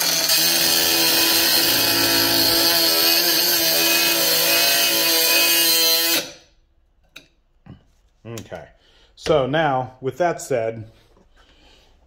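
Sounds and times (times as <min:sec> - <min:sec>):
grinder motor whine: 0:00.0 - 0:06.2
abrasive wheel grinding metal: 0:00.0 - 0:06.3.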